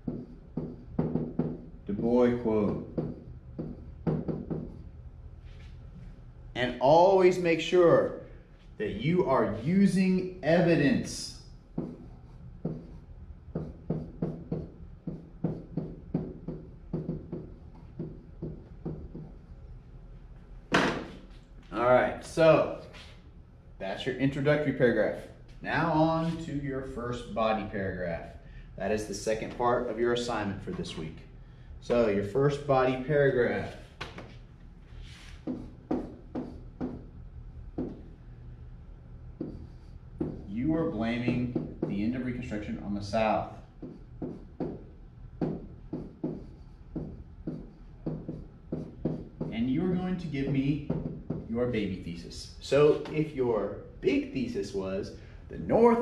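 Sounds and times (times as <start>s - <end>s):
pen tapping on whiteboard: 0.0s - 1.7s, 2.7s - 4.8s, 11.8s - 19.4s, 35.4s - 37.1s, 37.7s - 38.1s, 39.4s - 40.5s, 41.2s - 42.0s, 43.8s - 49.6s, 50.4s - 51.5s
steady low hum: 0.0s - 56.0s.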